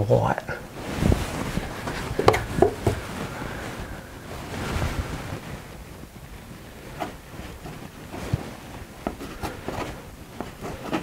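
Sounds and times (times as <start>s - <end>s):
palette knife scraping paint: 8.9s - 11.0s.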